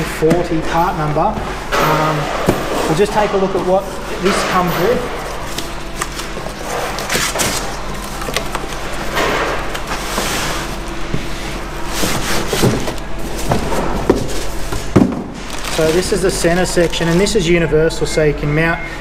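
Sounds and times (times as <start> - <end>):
plastic bags rustling: 0.0 - 17.6
cardboard flaps scraping: 2.3 - 17.4
parts knocking on workbench: 12.6 - 15.4.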